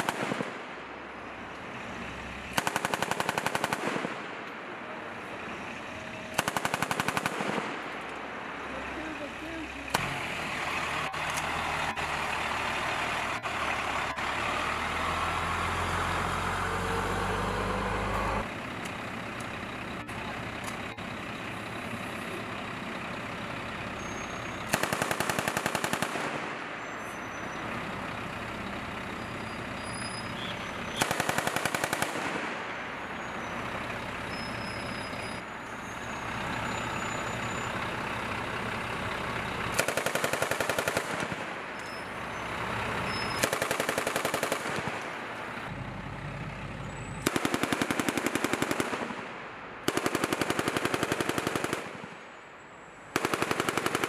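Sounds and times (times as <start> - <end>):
truck diesel engine running: 0.7 - 26.2, 26.8 - 48.9
heavy machine gun bursts: 2.5 - 4.3, 6.3 - 7.9, 24.7 - 26.5, 30.9 - 32.6, 39.7 - 41.5, 43.1 - 45.0, 47.2 - 49.2, 49.9 - 52.1, 53.1 - 54.0.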